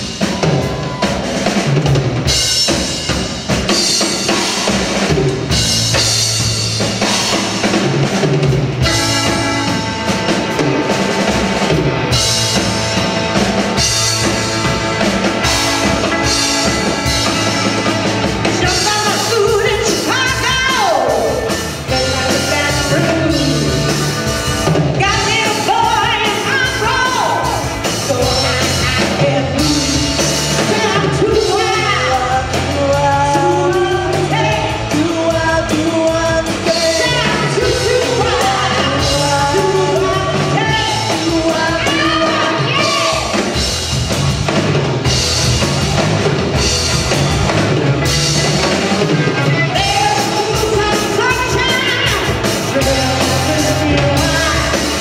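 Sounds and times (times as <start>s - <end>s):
bass guitar: 0.0s - 55.0s
drum kit: 0.0s - 55.0s
electric guitar: 0.0s - 55.0s
woman singing: 18.4s - 24.2s, 24.9s - 43.5s, 49.6s - 55.0s.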